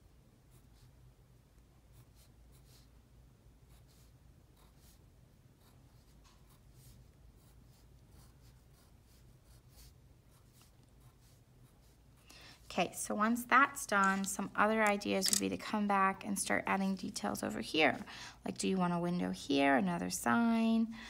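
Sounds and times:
pencil scratching on paper: 0:01.9 - 0:03.0, 0:03.6 - 0:12.2.

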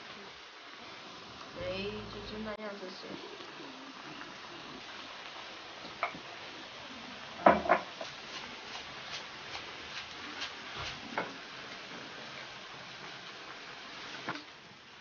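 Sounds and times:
low steady hiss: 0:00.0 - 0:15.0
ceramic pot set down on shelf: 0:07.4 - 0:07.9
knock: 0:07.4 - 0:07.9.

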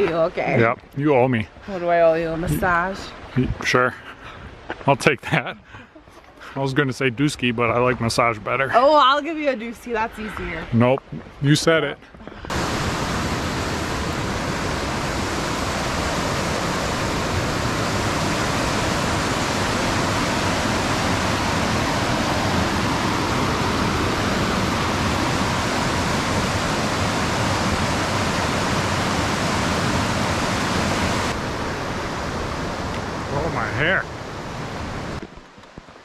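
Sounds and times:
creek rushing over rocks: 0:12.5 - 0:36.0.

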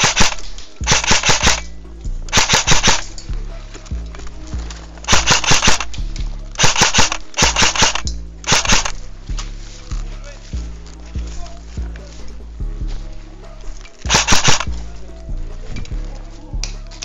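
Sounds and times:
airsoft gun shots: 0:00.0 - 0:01.7, 0:02.3 - 0:03.1, 0:05.1 - 0:05.9, 0:06.6 - 0:09.0, 0:14.1 - 0:14.7
background music with low drone: 0:00.0 - 0:17.0.

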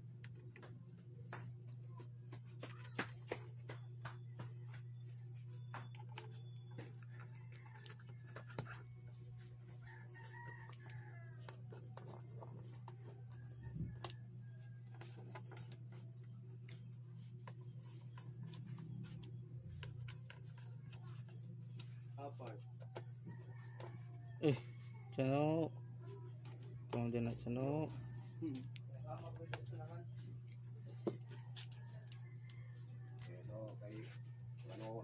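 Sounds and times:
rooster crowing: 0:09.8 - 0:12.2, 0:30.9 - 0:35.0.

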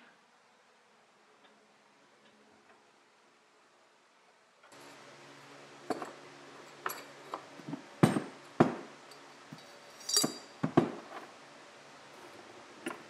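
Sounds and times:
ringing metal clink: 0:09.1 - 0:10.6.

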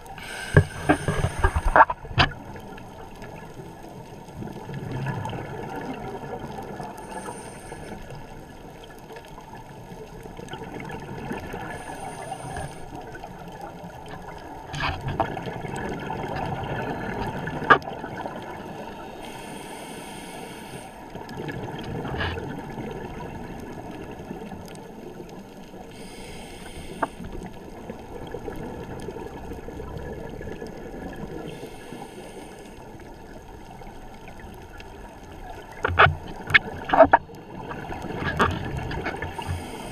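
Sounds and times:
diver's regulator breathing: 0:00.0 - 0:02.3, 0:06.8 - 0:08.3, 0:11.5 - 0:13.1, 0:18.7 - 0:21.2, 0:25.8 - 0:27.6, 0:31.3 - 0:33.1, 0:39.1 - 0:39.9
exhaled bubbles hissing: 0:00.0 - 0:09.0, 0:10.4 - 0:14.6, 0:15.2 - 0:39.9.

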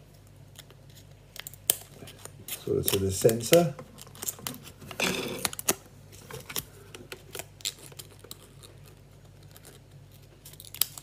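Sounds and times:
scissors cutting film: 0:01.4 - 0:04.5.

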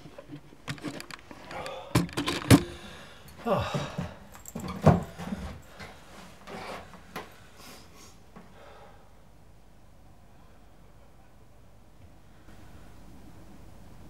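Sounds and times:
clicks and knocks: 0:00.0 - 0:02.8.

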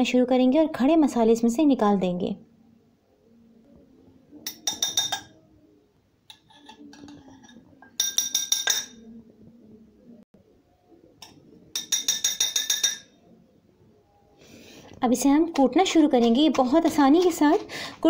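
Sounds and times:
metal spoon clinking in mortar: 0:04.4 - 0:05.4, 0:06.3 - 0:09.0, 0:11.2 - 0:13.2.

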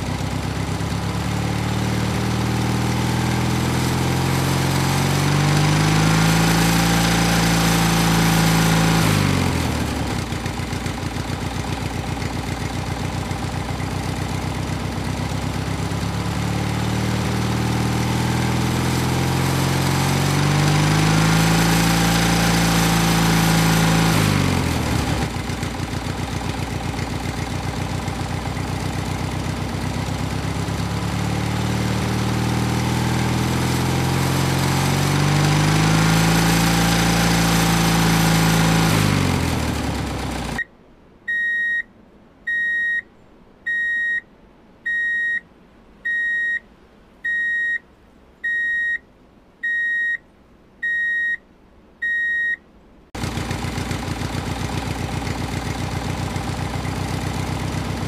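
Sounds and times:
tractor engine running: 0:00.0 - 0:40.7, 0:53.2 - 0:58.0
high electronic beeps: 0:41.3 - 0:41.9, 0:42.5 - 0:43.1, 0:43.7 - 0:44.2, 0:44.9 - 0:45.4, 0:46.1 - 0:46.6, 0:47.3 - 0:47.8, 0:48.4 - 0:49.0, 0:49.6 - 0:50.2, 0:50.8 - 0:51.4, 0:52.0 - 0:52.6.

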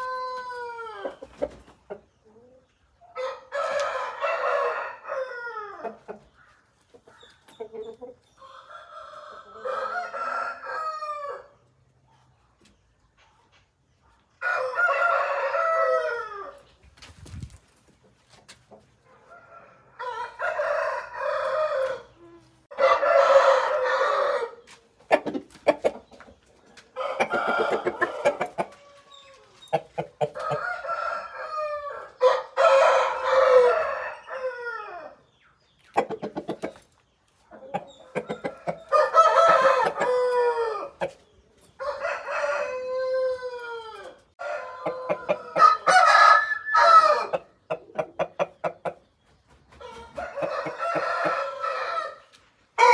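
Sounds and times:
roosters crowing: 0:00.0 - 0:01.3, 0:03.2 - 0:06.0, 0:08.4 - 0:11.6, 0:14.4 - 0:16.6, 0:19.3 - 0:24.7, 0:26.9 - 0:35.2, 0:38.0 - 0:41.2, 0:41.8 - 0:48.8, 0:49.8 - 0:52.9.

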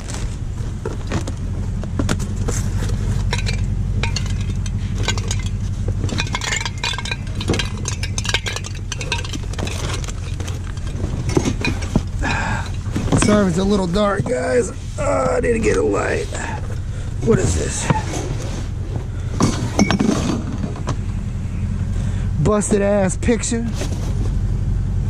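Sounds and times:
truck engine idling: 0:00.0 - 0:25.0
household items clinking and clattering: 0:02.1 - 0:15.3, 0:19.4 - 0:20.9.

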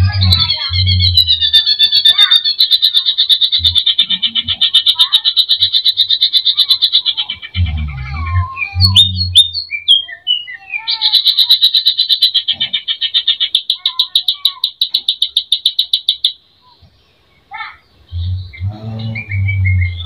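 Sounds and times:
bird rattling trill: 0:00.0 - 0:07.1, 0:13.4 - 0:16.4
bird whistles and chirps: 0:08.3 - 0:11.7, 0:18.3 - 0:20.0
sharp clicks: 0:13.6 - 0:16.4.

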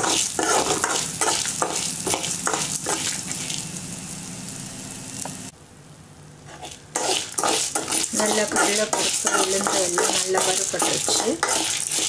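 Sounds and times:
spoon scraping metal pan: 0:00.0 - 0:03.2, 0:06.5 - 0:12.0
spices sizzling in oil: 0:00.0 - 0:05.5, 0:06.5 - 0:12.0.

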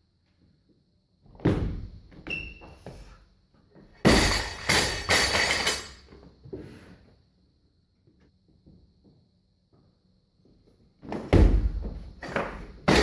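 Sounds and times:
barbell thud: 0:04.0 - 0:05.6
barbell crashing on floor: 0:04.0 - 0:06.0
metal clatter of bouncing plates: 0:04.0 - 0:06.1.

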